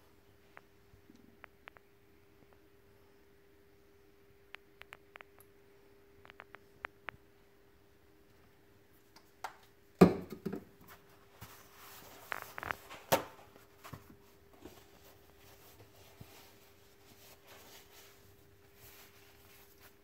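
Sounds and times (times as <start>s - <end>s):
bottle knocking on glass cooktop: 10.0s - 10.6s.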